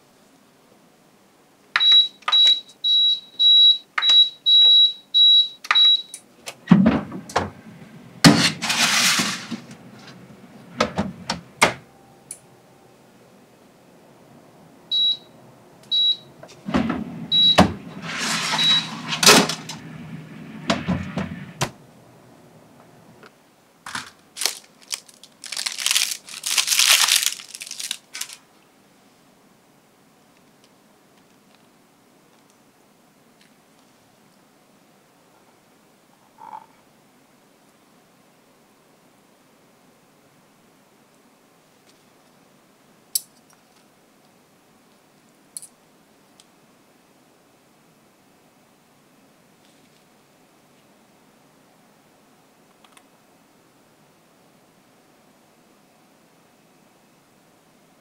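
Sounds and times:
oven electronic beeps: 1.8s - 6.2s, 14.9s - 16.3s, 17.3s - 19.9s
metal tray clatter: 8.3s - 9.7s
parchment paper crinkling: 23.9s - 28.4s.

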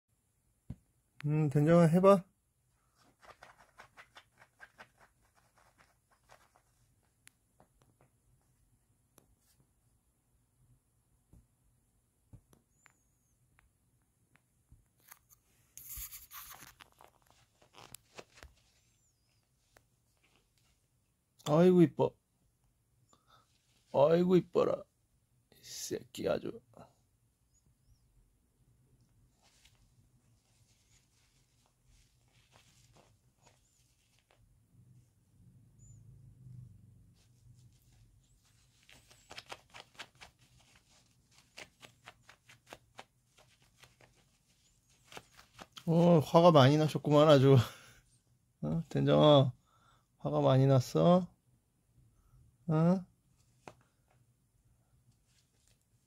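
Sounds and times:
kitten claws scratching fabric: 2.8s - 7.2s, 15.0s - 20.8s, 29.3s - 34.4s, 37.2s - 45.9s.

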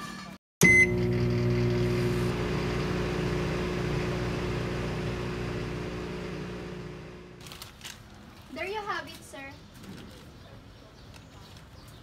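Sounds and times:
microwave oven humming: 0.6s - 7.4s.

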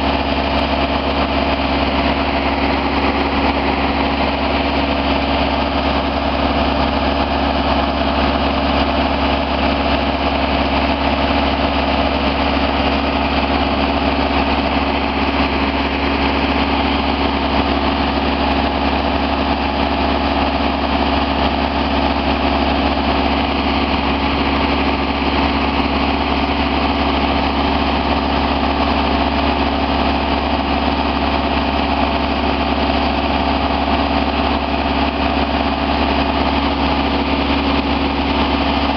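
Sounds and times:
diesel engine idling: 0.0s - 38.9s.

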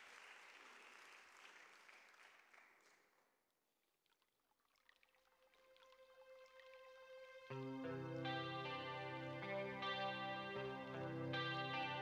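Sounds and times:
audience applause: 0.0s - 3.1s
held note of backing track: 7.5s - 12.0s.

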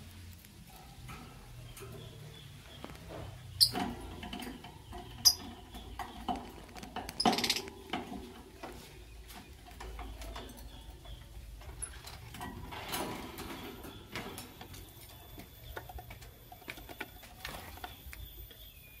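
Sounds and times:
bird pecking: 0.0s - 18.3s.

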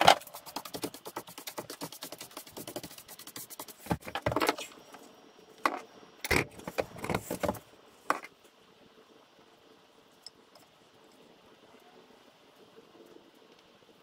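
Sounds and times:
quick brushing strokes: 0.0s - 4.1s.

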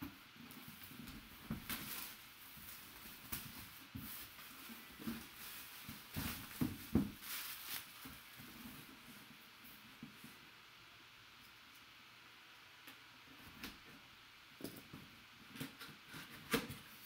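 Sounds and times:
plastic shrink wrap crinkling: 0.6s - 8.6s.

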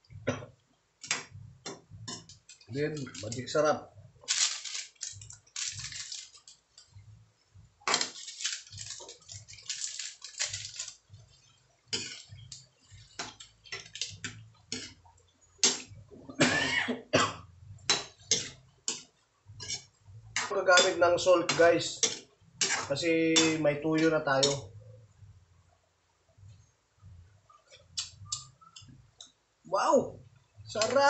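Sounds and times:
metal spatula scraping in wok: 7.9s - 15.0s, 17.9s - 19.0s, 19.6s - 23.6s.

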